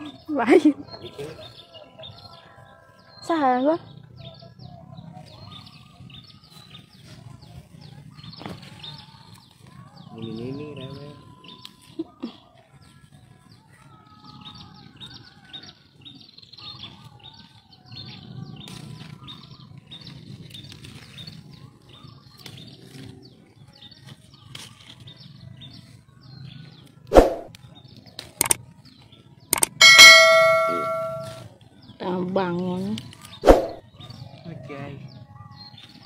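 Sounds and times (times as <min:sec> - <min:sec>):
sharp clicks: 0:28.4 - 0:28.6, 0:29.5 - 0:29.8
bell-like ding: 0:29.6 - 0:31.4.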